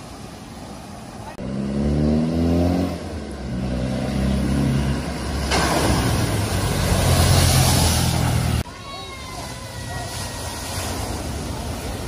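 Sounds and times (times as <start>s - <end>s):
engine revving: 1.4s - 8.6s.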